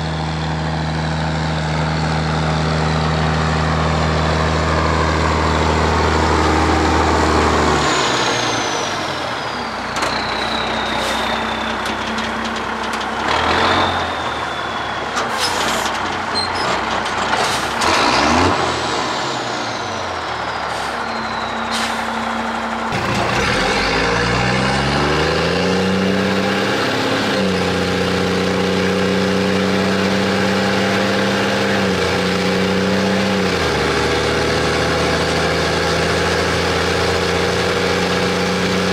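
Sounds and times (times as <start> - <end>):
diesel engine under heavy load: 0.0 - 38.9
turbo whistle: 8.8 - 11.9.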